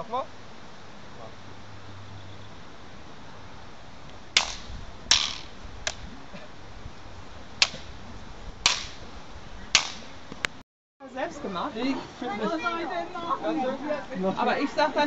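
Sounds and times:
wooden staffs clacking: 0:04.4 - 0:06.0, 0:07.6 - 0:07.9, 0:08.7 - 0:09.0, 0:09.8 - 0:10.1.

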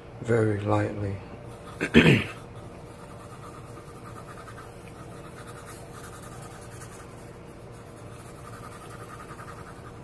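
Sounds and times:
steady low hum: 0:00.0 - 0:10.0
pencil sketching on paper: 0:02.4 - 0:10.0.

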